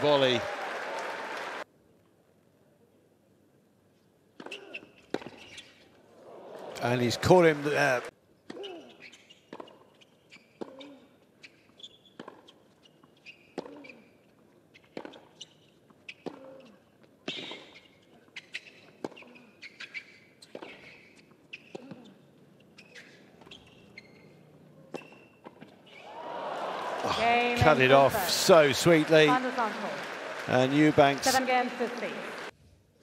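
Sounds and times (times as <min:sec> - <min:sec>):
shoe squeaks: 0:04.4 - 0:06.0, 0:08.5 - 0:26.0.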